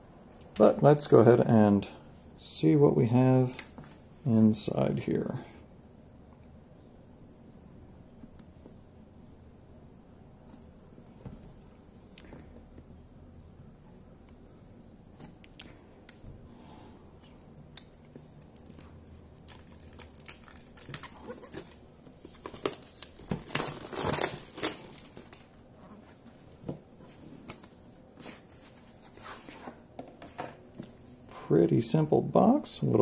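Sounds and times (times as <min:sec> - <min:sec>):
packaging tearing and crinkling: 0:17.8 - 0:25.5.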